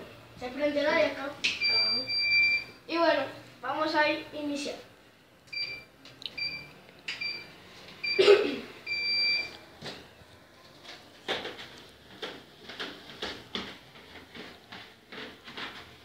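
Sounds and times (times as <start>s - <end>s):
treadmill console beeps: 1.6s - 2.8s, 5.5s - 9.6s
bare feet on treadmill belt: 10.6s - 16.0s.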